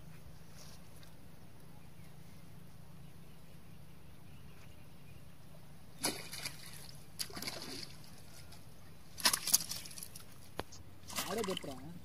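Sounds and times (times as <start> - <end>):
water splashing: 6.0 - 8.4, 9.2 - 10.4, 11.0 - 12.0.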